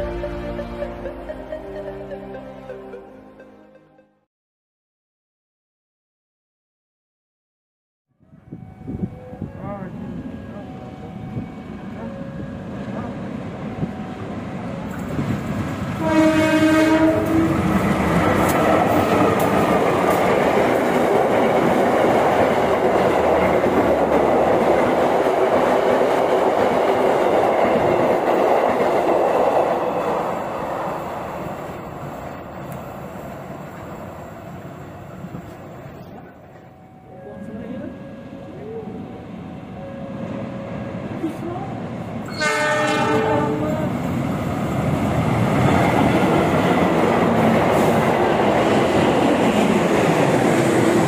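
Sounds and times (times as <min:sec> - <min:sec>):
train passing loudly: 0:08.5 - 0:51.0
train horn blast: 0:16.0 - 0:17.7, 0:42.3 - 0:43.9.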